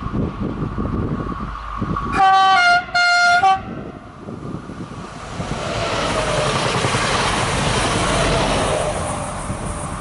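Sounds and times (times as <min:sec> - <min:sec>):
train passing rumble: 0:00.0 - 0:10.0
train two-tone horn: 0:02.1 - 0:03.9.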